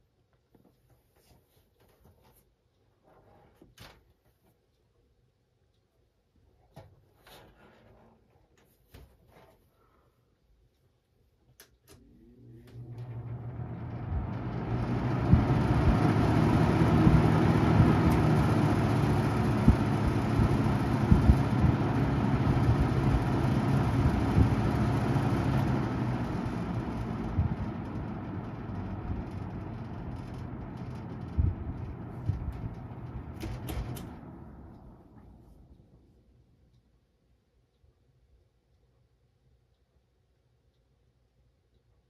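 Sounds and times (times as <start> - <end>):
box fan motor hum: 11.9 - 36.2
rush of air from fan: 12.8 - 35.7.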